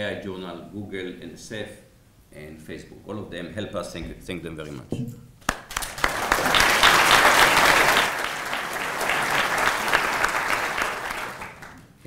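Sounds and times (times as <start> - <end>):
audience applauding: 5.5 - 11.9.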